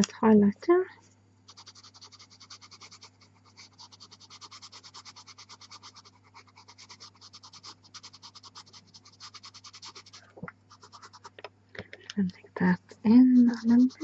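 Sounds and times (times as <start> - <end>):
pencil scratching on paper: 1.5 - 11.4, 13.1 - 14.0.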